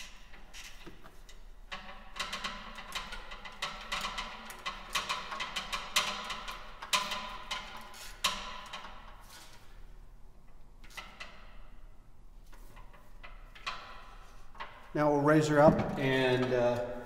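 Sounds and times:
hand ratchet clicking: 0:00.0 - 0:09.6
metallic knocks: 0:12.6 - 0:16.8.

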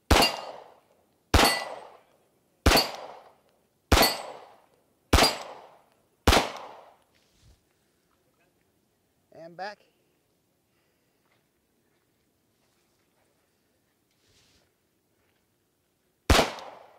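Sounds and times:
handgun shots with echo: 0:00.1 - 0:02.0, 0:02.7 - 0:07.0, 0:16.3 - 0:16.9.

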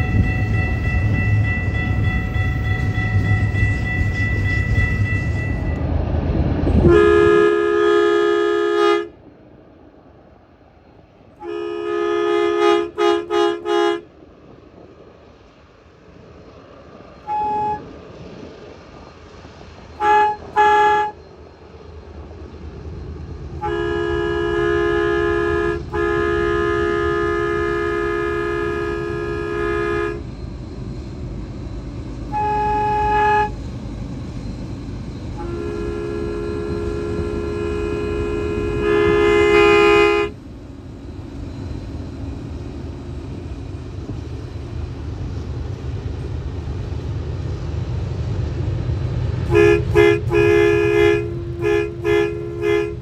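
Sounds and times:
locomotive air horn: 0:00.0 - 0:05.8, 0:06.7 - 0:09.2, 0:11.4 - 0:14.1, 0:17.2 - 0:18.0, 0:19.9 - 0:21.3, 0:23.6 - 0:30.4, 0:32.2 - 0:33.7, 0:35.1 - 0:40.4, 0:49.4 - 0:53.0
diesel engines rumbling: 0:00.0 - 0:53.0.

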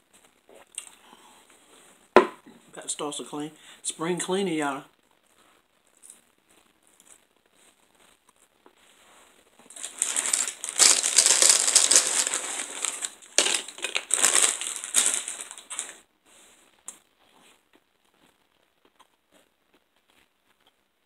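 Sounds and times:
loud crinkling and crunching: 0:05.0 - 0:16.1.

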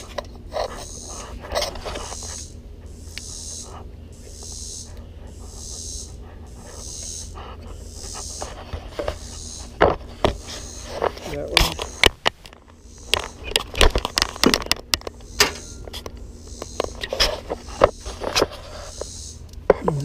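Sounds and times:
heavy breathing: 0:05.1 - 0:08.0.

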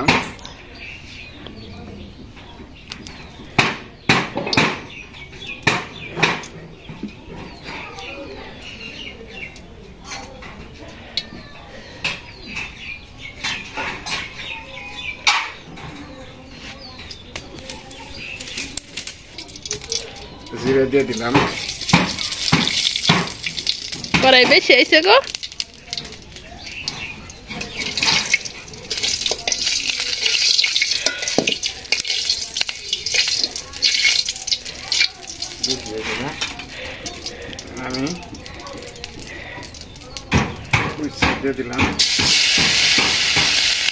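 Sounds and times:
small birds chirping: 0:00.0 - 0:43.5
food sizzling in hot oil: 0:17.6 - 0:43.9.

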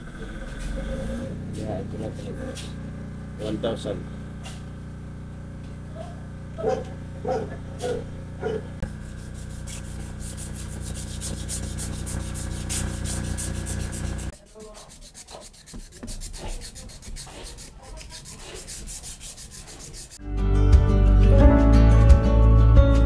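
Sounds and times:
machine hum: 0:00.0 - 0:14.3
fast rubbing strokes: 0:08.8 - 0:20.2.

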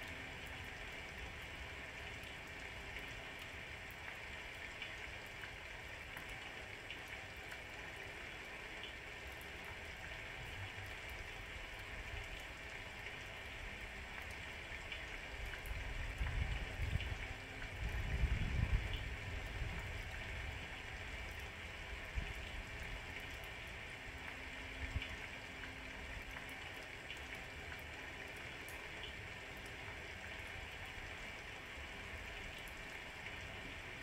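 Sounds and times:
steady rain: 0:00.0 - 0:34.0
raindrop ticks: 0:14.1 - 0:20.1.

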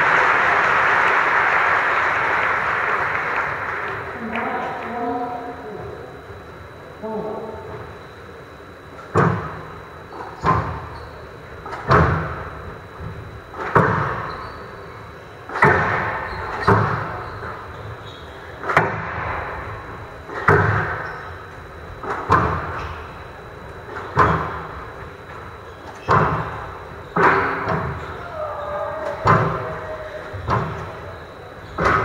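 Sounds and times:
squash ball hitting rackets and walls: 0:09.1 - 0:09.6, 0:10.2 - 0:10.9, 0:11.6 - 0:12.5, 0:13.5 - 0:14.3, 0:15.5 - 0:17.6, 0:18.6 - 0:19.7, 0:20.3 - 0:21.1, 0:22.0 - 0:23.0, 0:23.8 - 0:24.8, 0:25.8 - 0:28.2, 0:29.0 - 0:32.0.

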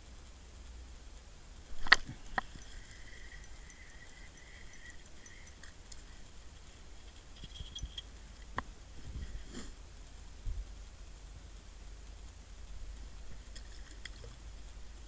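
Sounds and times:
faint thin reel whir: 0:01.6 - 0:11.2
fishing reel clicks: 0:01.8 - 0:08.1.

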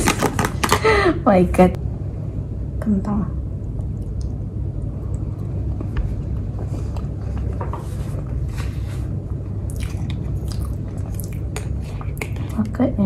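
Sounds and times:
steady low hum: 0:00.0 - 0:13.0
person chewing: 0:09.7 - 0:12.6.

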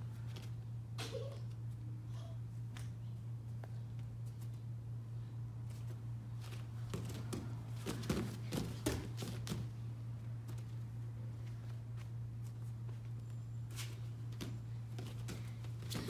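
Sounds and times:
steady low hum: 0:00.0 - 0:16.0
hands and feet slapping on mats: 0:05.6 - 0:09.8, 0:11.4 - 0:16.0.

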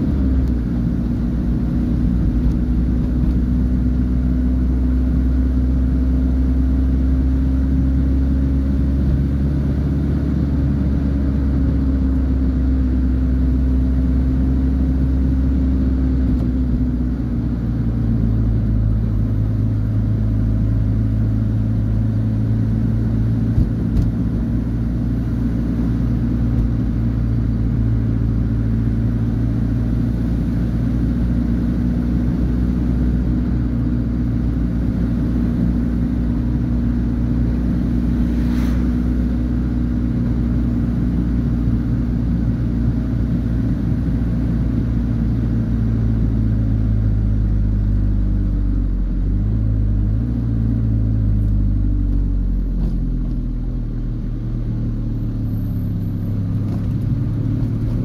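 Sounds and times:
road noise: 0:00.0 - 0:58.0
vehicle engine running: 0:00.0 - 0:58.0
short sharp sound: 0:38.1 - 0:39.3.

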